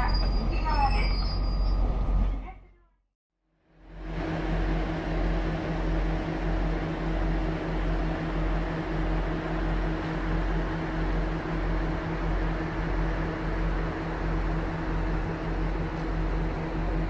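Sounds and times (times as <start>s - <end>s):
diesel railcar engine idling: 3.8s - 17.0s.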